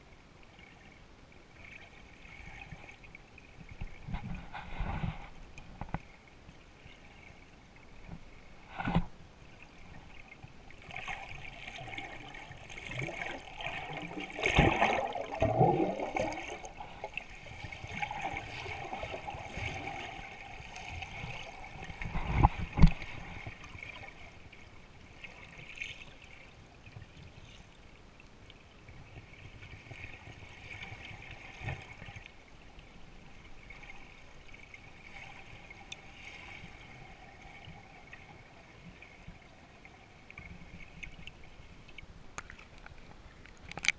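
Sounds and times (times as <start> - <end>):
underwater water gurgling: 0.1 - 27.7, 28.5 - 43.9
bubbling bursts: 13.6 - 17.0.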